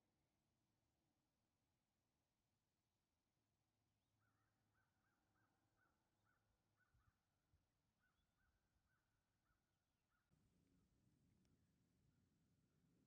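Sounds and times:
faint crow cawing: 0:04.2 - 0:07.3, 0:08.0 - 0:10.4.

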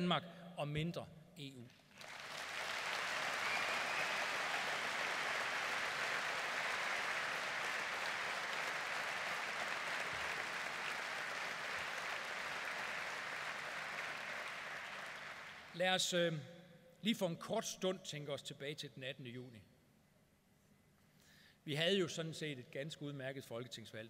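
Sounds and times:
audience applauding: 0:01.9 - 0:15.8.

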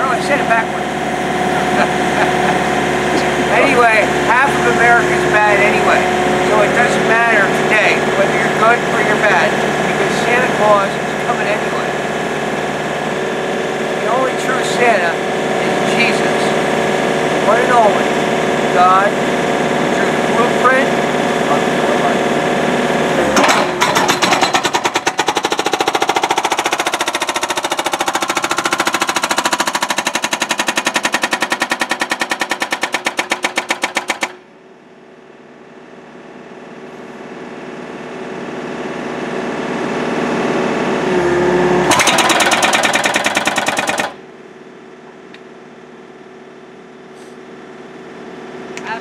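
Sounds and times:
excavator engine running: 0:00.0 - 0:49.0
hydraulic hammer pounding concrete: 0:22.8 - 0:34.5, 0:41.8 - 0:44.3.

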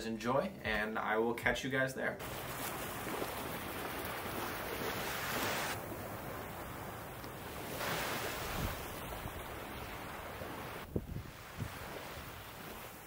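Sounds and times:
ocean surf on a beach: 0:02.2 - 0:13.0
wind rumbling on microphone: 0:08.2 - 0:13.0.

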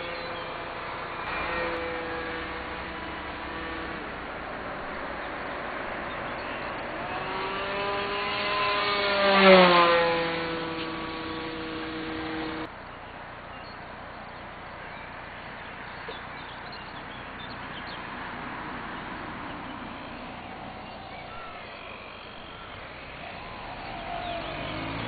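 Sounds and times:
small electric motor whine: 0:00.0 - 0:12.8, 0:18.9 - 0:25.0
steady outdoor noise: 0:00.0 - 0:25.0
faint bird chirps: 0:12.8 - 0:18.1, 0:19.5 - 0:25.0.

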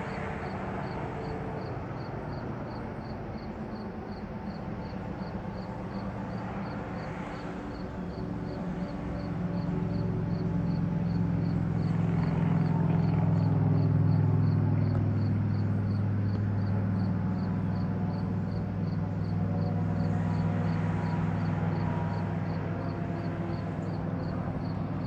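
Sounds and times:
low engine hum: 0:00.0 - 0:25.0.

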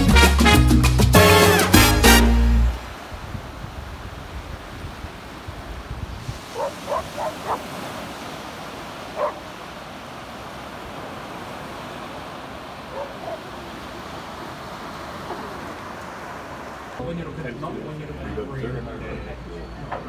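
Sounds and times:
small waves breaking on beach: 0:02.8 - 0:17.1
wind rumbling on microphone: 0:02.9 - 0:13.4
dog barking: 0:06.5 - 0:07.7, 0:09.1 - 0:09.5, 0:12.8 - 0:13.6.

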